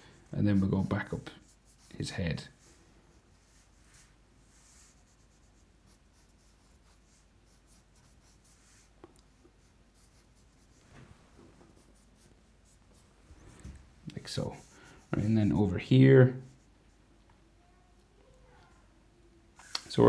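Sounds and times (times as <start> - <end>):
marker scratching on paper: 0.4 - 10.8, 11.6 - 13.6, 14.3 - 15.6.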